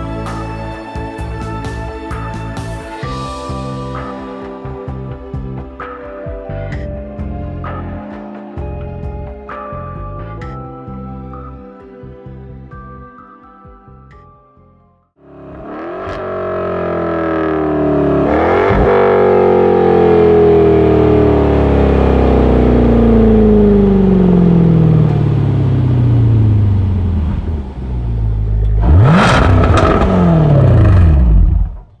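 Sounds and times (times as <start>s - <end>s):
car engine revving loud: 15.2s - 31.9s
exhaust crackles: 15.2s - 32.0s.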